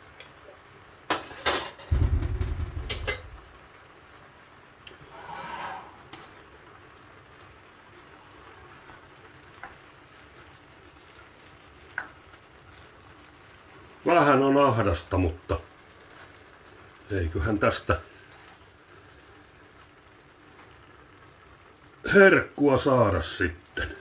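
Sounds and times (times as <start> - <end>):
frying pan scraping on hob: 5.0 - 6.4.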